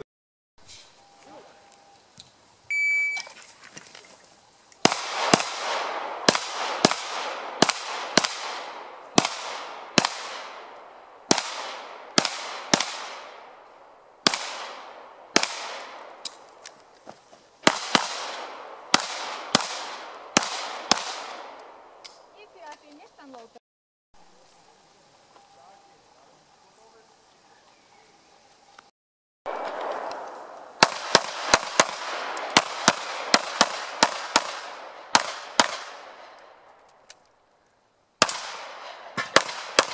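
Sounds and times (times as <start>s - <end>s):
shot timer beep: 2.7s - 3.3s
rapid pistol shots: 4.8s - 13.6s, 14.2s - 16.2s, 17.6s - 21.8s, 29.5s - 36.4s, 38.2s - 39.9s.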